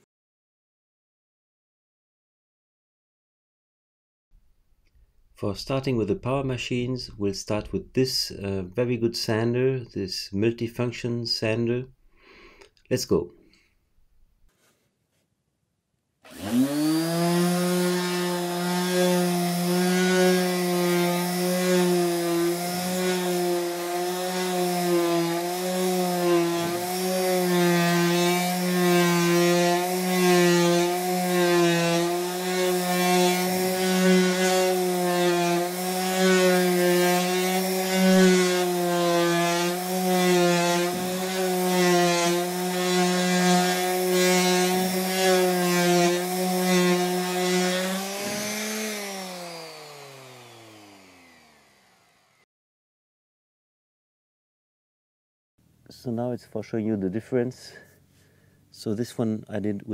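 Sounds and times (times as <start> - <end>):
sanding pad rasping on wood: 16.3 - 51.8
electric sander motor hum: 16.3 - 52.4.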